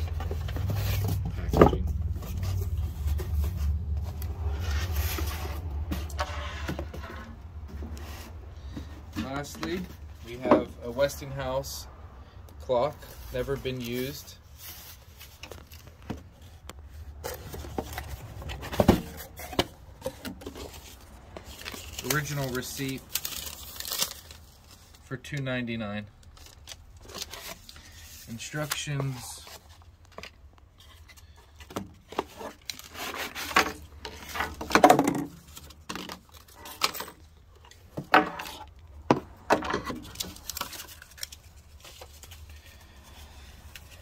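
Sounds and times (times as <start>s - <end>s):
paper packing rustling: 13.0s - 25.1s, 39.7s - 44.0s.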